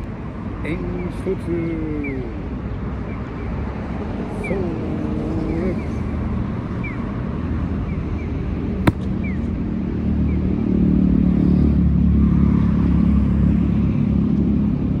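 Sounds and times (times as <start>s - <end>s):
traffic rumble: 0.0s - 15.0s
wooden striker knocking on paving: 8.9s - 9.1s.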